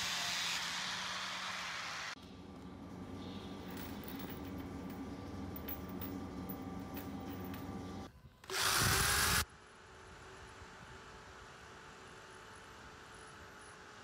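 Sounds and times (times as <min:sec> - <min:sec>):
steady low hum: 0:02.2 - 0:08.4
metal pins clicking: 0:02.5 - 0:08.1.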